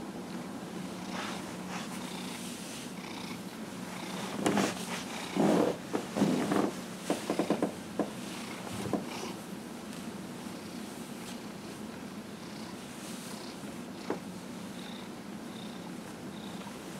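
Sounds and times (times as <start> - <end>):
cat purring: 0.8 - 9.4, 12.4 - 16.9.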